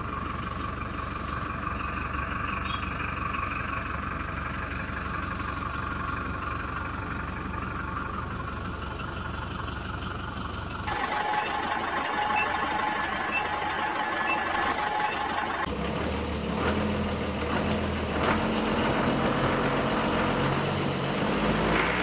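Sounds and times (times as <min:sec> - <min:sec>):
truck engine drone: 0:00.0 - 0:22.0
truck engine idling: 0:00.0 - 0:22.0
faint beeps: 0:11.0 - 0:15.7.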